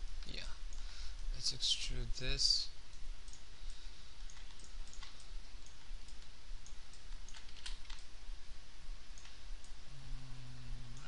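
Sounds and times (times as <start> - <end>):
steady low hum: 0.0 - 11.0
computer mouse clicks: 2.9 - 8.1, 9.1 - 9.8
keyboard keys clicking: 4.2 - 8.1.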